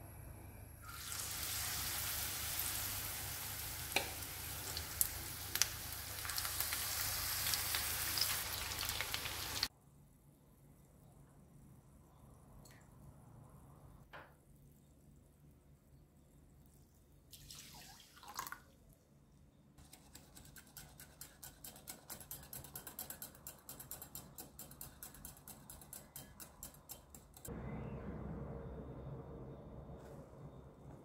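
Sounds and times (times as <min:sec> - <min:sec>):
whisk beating against glass: 0:20.1 - 0:27.5
low hum: 0:27.5 - 0:31.0.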